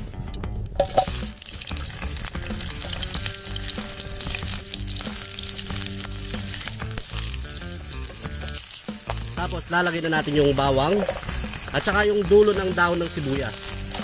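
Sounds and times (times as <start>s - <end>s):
onions sizzling in oil: 0.0s - 14.0s
onions dropped into pan thud: 0.8s - 1.4s.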